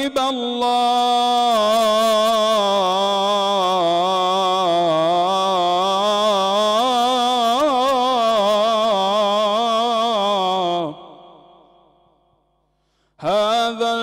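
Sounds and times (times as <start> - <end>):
man singing devotional hymn: 0.0 - 11.8, 13.1 - 14.0.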